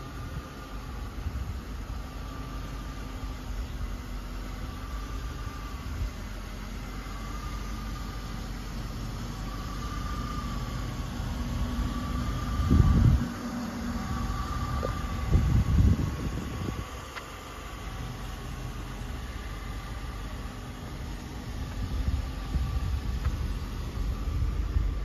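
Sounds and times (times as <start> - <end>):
faint wavering hum: 0.0 - 25.0
low outdoor rumble: 0.0 - 25.0
wind gusts on microphone: 12.4 - 13.4, 14.2 - 17.1.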